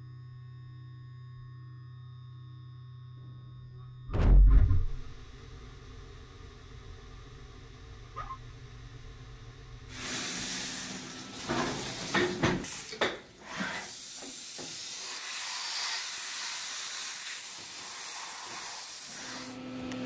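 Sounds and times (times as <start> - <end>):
compressed air hissing from nozzle: 9.9 - 19.6.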